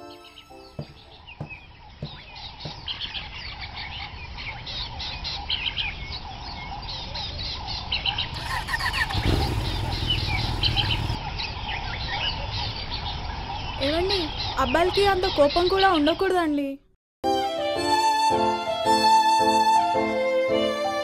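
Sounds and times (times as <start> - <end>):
birds chirping: 0.0 - 16.8.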